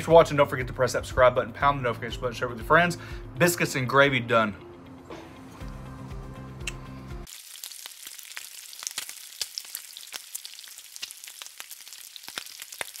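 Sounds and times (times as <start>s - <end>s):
music track: 0.0s - 7.3s
bacon sizzling on a griddle: 7.2s - 13.0s.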